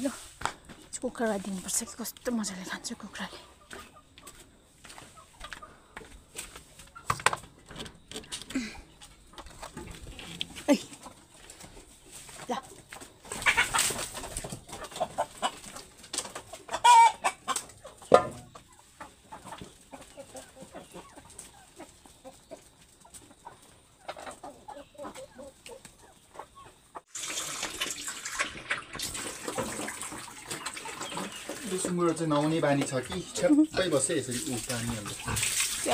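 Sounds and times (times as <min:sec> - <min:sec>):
chickens clucking: 0:00.0 - 0:27.1, 0:28.3 - 0:35.9
chickens pecking food: 0:00.2 - 0:35.9
chicken squawk: 0:13.3 - 0:14.0, 0:16.6 - 0:22.4
water splashing: 0:27.1 - 0:33.1, 0:33.8 - 0:35.9.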